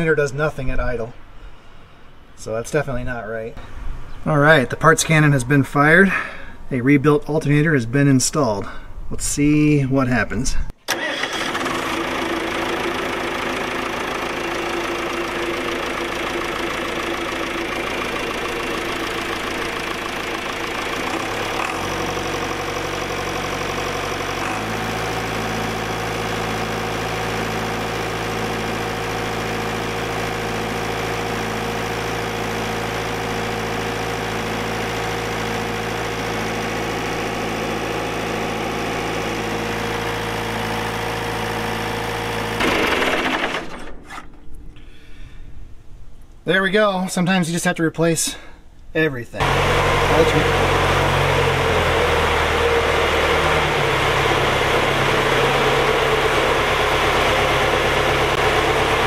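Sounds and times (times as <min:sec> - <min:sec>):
tractor diesel engine running: 0:10.9 - 0:44.3, 0:49.4 - 0:59.0.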